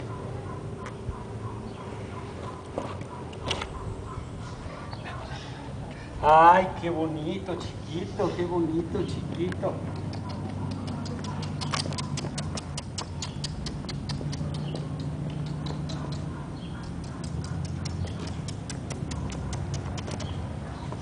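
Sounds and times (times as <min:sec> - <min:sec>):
dog nails clicking on asphalt: 0:09.0 - 0:21.0.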